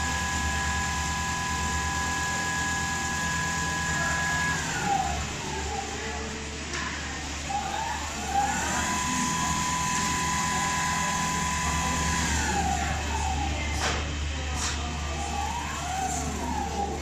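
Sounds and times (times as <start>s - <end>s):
low machine hum: 0.0s - 17.0s
sewing machine motors whining: 0.0s - 17.0s.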